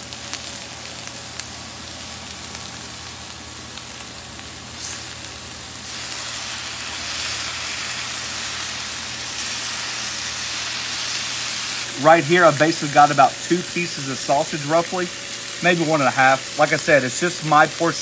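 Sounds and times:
bacon sizzling on griddle: 0.0s - 18.0s.

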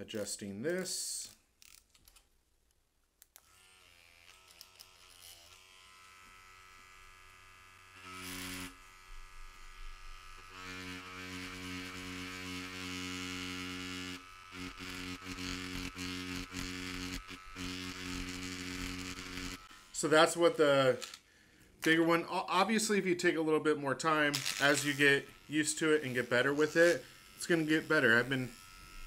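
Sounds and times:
tattoo machine buzzing: 1.6s - 1.9s, 3.4s - 22.2s, 24.0s - 29.0s.

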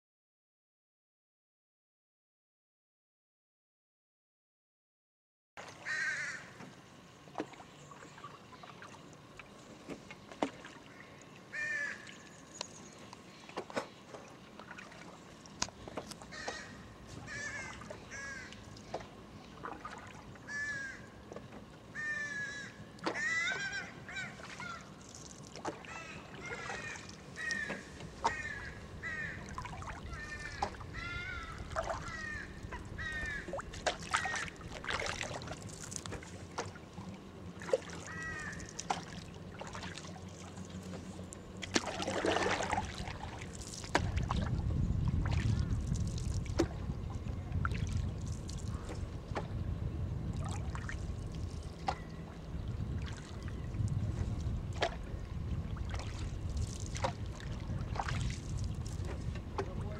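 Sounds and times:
low steady rumble: 5.6s - 59.9s
bird calls: 15.8s - 19.7s, 21.9s - 25.0s, 25.7s - 34.5s.

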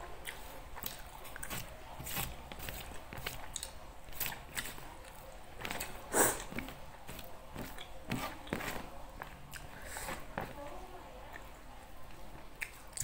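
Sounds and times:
chewing and wet mouth clicks: 0.2s - 1.6s, 3.4s - 5.9s, 12.5s - 13.0s.

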